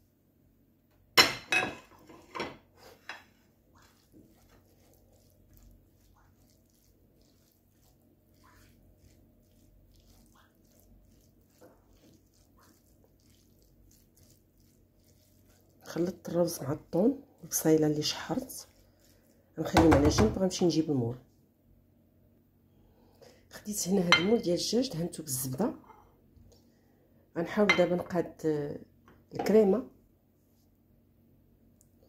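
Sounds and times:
spatula scraping pan: 1.8s - 16.8s.

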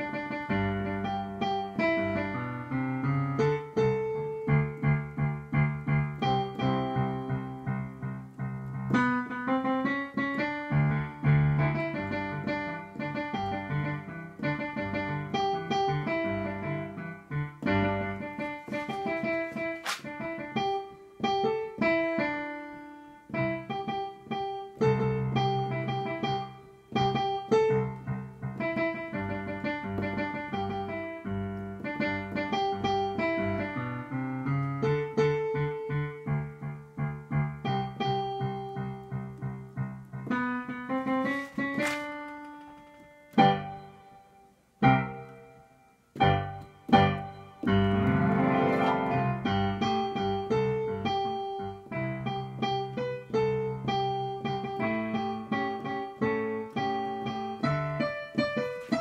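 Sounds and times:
digital piano chords and melody: 0.0s - 59.0s.

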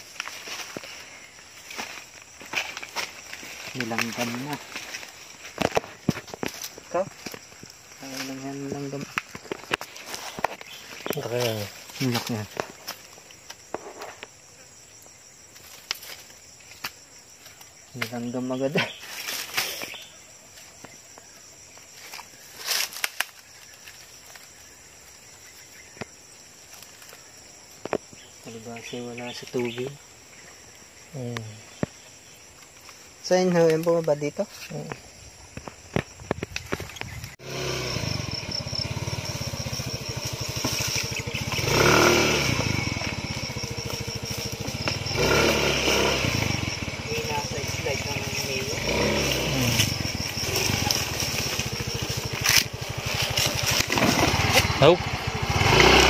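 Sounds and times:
dry leaves and twigs rustling: 0.0s - 56.0s
high insect buzz: 0.0s - 56.0s
scooter engine idling and revving: 36.7s - 56.0s.

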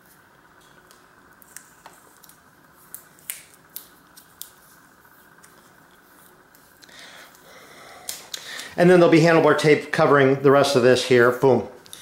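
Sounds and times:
tape crackling with clicks: 0.2s - 8.7s.

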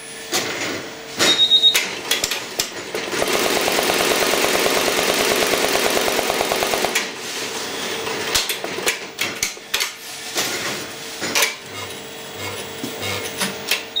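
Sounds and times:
faint machine hum: 0.0s - 14.0s
embroidery machine stitching: 1.9s - 7.2s.

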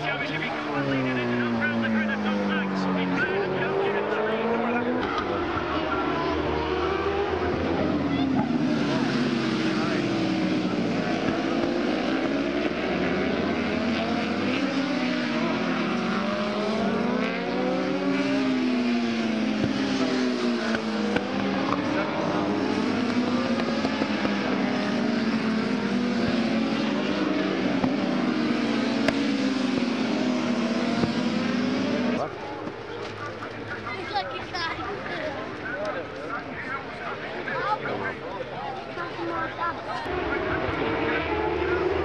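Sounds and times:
racing motorcycles at high revs: 0.0s - 33.7s, 40.0s - 42.0s.

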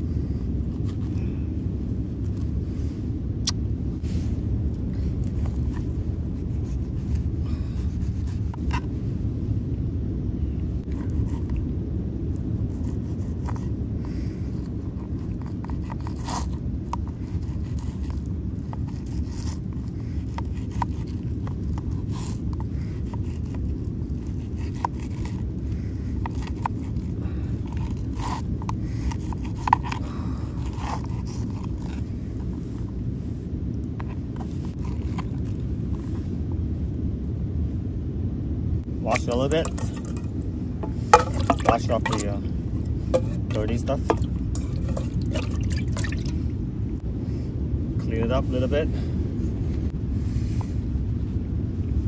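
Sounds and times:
low rumble: 16.5s - 48.2s
knife scraping fish fillet: 39.3s - 46.4s.

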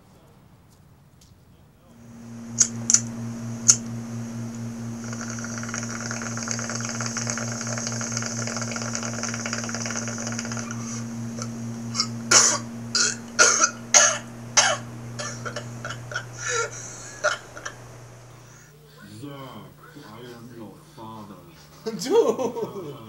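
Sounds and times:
steady hiss: 1.8s - 23.0s
person coughing: 13.4s - 15.4s.

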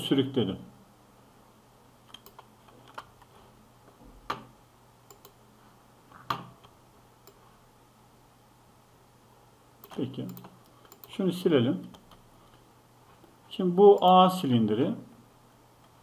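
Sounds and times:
keyboard and mouse clicks: 2.0s - 3.3s, 4.2s - 4.5s, 5.1s - 5.4s, 6.1s - 7.4s, 9.8s - 11.2s.

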